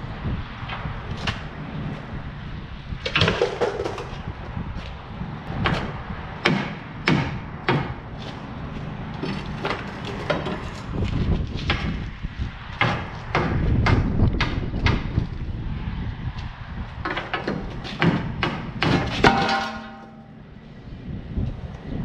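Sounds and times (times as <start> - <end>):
metal clanks on steel frame: 9.2 - 11.0, 17.1 - 20.4.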